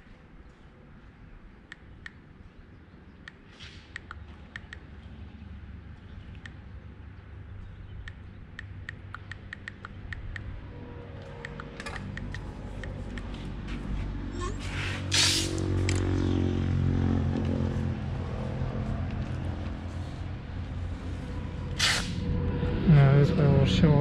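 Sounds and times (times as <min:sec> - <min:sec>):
tape ticks and crackles: 0:08.0 - 0:10.5
low machine drone: 0:09.5 - 0:24.0
tape ripping: 0:14.6 - 0:16.0, 0:21.8 - 0:22.2.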